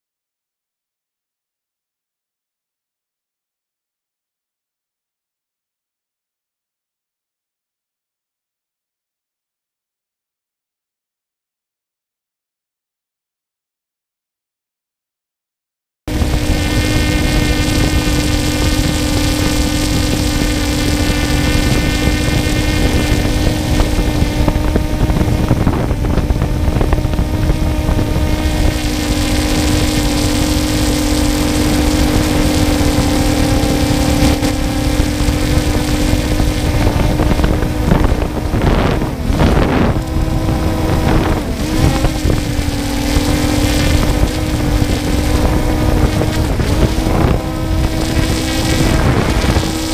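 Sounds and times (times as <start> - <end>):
drone motors humming: 16.1 - 49.9
wind rush: 16.1 - 49.9.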